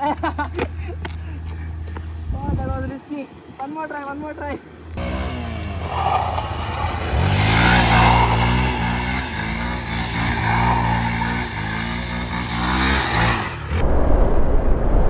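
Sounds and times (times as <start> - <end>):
motorcycle engine revving: 4.9 - 13.8.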